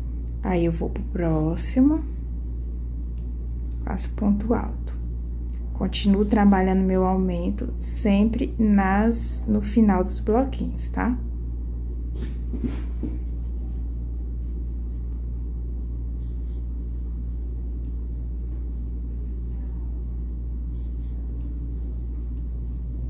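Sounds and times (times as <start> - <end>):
low hum: 0.0 - 23.0
crochet hook scratching twine: 16.2 - 23.0.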